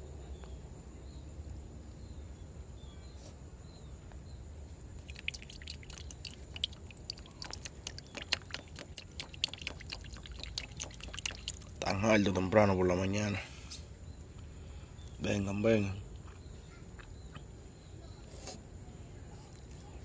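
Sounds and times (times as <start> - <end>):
water dripping: 4.7 - 12.6
hand splashing water: 5.0 - 12.0.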